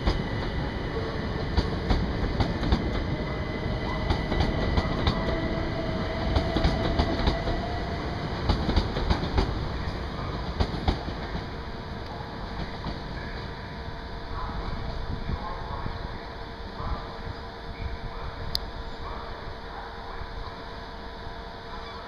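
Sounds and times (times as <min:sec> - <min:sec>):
train wheels clicking over rail joints: 0:00.0 - 0:11.5
electric train rumbling past: 0:00.0 - 0:22.0.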